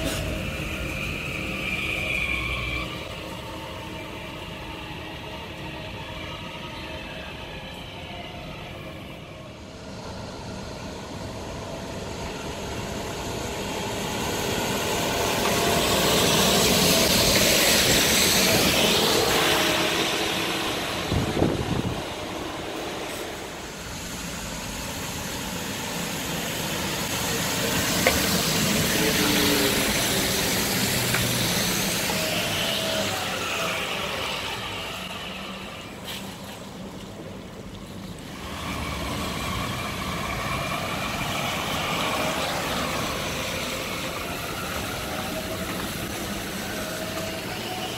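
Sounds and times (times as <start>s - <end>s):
tyre hiss on wet road: 13.3s - 37.1s.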